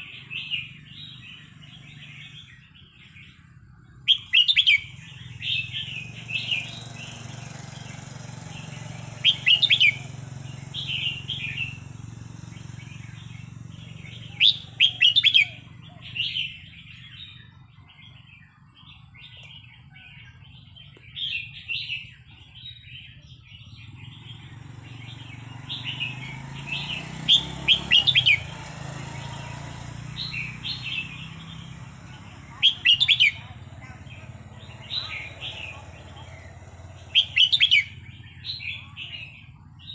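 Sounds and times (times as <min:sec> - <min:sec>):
bird singing whistled phrases: 0:04.1 - 0:05.0, 0:05.6 - 0:11.9, 0:12.6 - 0:16.6, 0:25.3 - 0:28.5, 0:32.6 - 0:33.4, 0:37.1 - 0:39.3.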